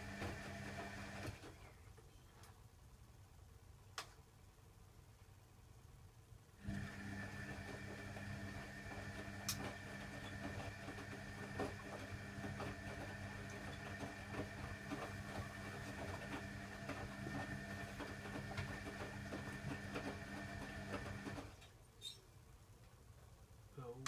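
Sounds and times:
washing machine motor hum: 0.0s - 1.7s, 6.6s - 21.7s.

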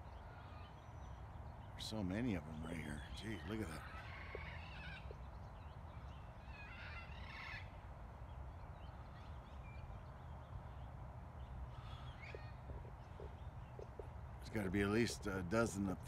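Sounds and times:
parrots squawking: 2.6s - 5.1s, 6.4s - 7.8s.

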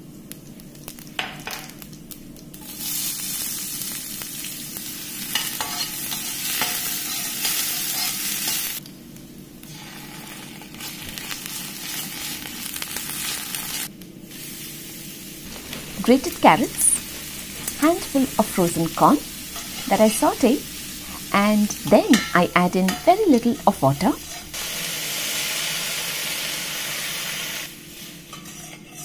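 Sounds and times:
onion sizzling in hot oil: 0.1s - 8.9s, 9.6s - 29.0s
metal spoon stirring in pan: 5.3s - 8.7s, 15.5s - 24.6s, 28.0s - 29.0s
mustard seeds crackling: 15.4s - 24.6s.

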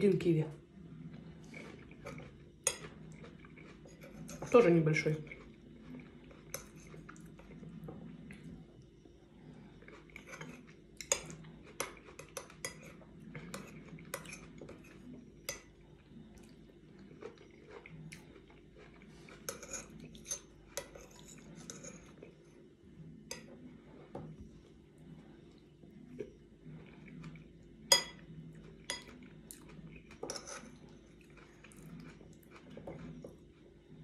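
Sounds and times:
spoon clinking against porcelain bowl: 27.9s - 28.2s.

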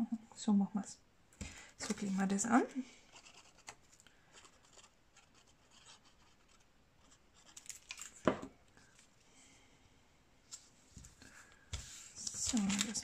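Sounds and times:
paper rustling and rubbing: 11.8s - 13.0s.

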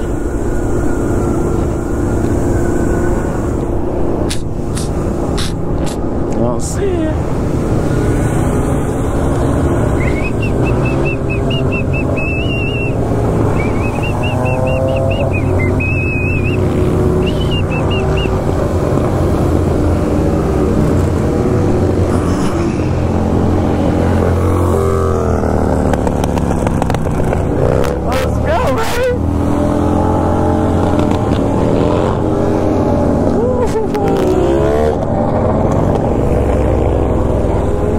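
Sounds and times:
motorcycles revving: 0.0s - 37.9s
high wavering chirping tone: 9.8s - 18.4s.

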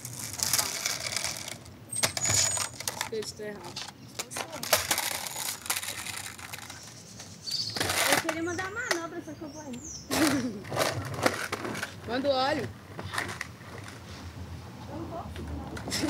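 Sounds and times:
skateboards rolling on concrete: 0.0s - 16.0s
high squeaks: 1.9s - 3.0s.

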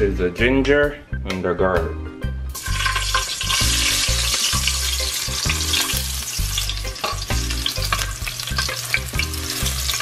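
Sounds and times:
garlic sizzling in hot oil: 2.5s - 10.0s.

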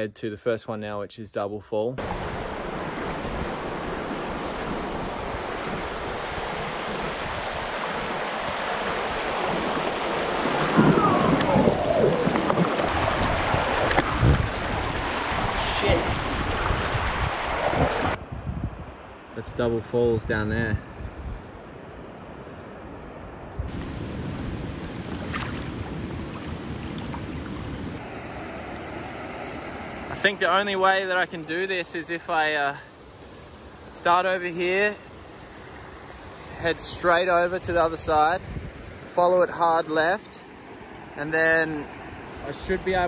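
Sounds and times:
river water rushing: 2.0s - 18.2s, 24.8s - 37.5s, 38.7s - 43.0s
whitewater rapids rushing: 3.7s - 18.2s.

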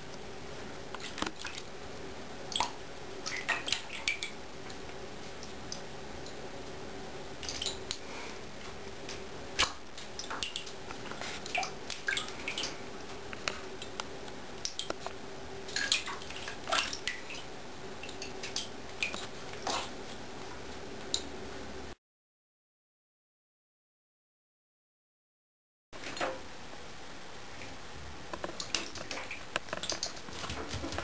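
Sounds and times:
faint steady hum: 0.0s - 22.0s, 26.0s - 31.0s
small water splashes: 15.7s - 19.9s.

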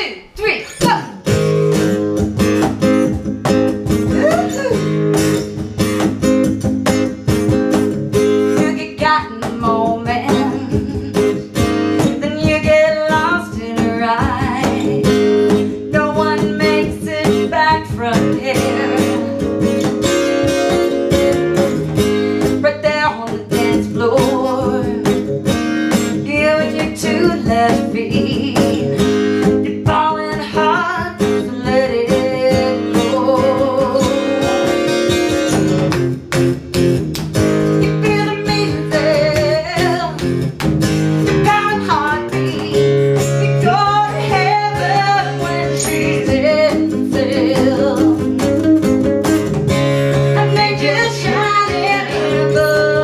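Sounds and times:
strummed acoustic guitar: 0.4s - 53.0s
box drum beat: 0.8s - 15.7s
woman singing: 4.0s - 5.0s, 8.5s - 19.8s, 22.3s - 25.4s, 26.0s - 34.9s, 37.8s - 40.3s, 41.4s - 49.0s, 50.0s - 53.0s.

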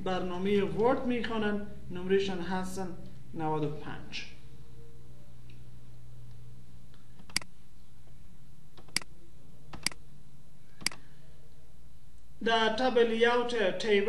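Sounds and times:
faint low hum: 0.0s - 14.0s
computer mouse clicks: 7.2s - 7.5s, 8.8s - 9.1s, 9.7s - 10.0s.

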